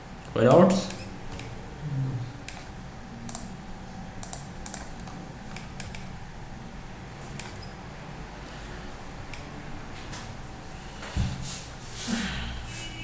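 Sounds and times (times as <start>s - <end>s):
faint electrical hum: 0.0s - 13.0s
computer keys and mouse clicking: 2.4s - 2.7s, 3.3s - 3.5s, 4.2s - 6.1s, 7.3s - 7.7s.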